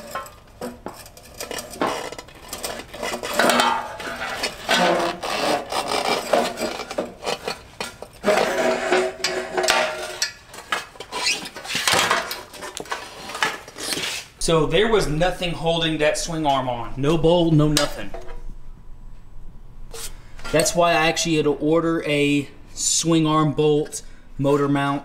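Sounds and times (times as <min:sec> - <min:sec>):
metal scraping and clanking: 0:00.0 - 0:16.6, 0:17.7 - 0:18.6.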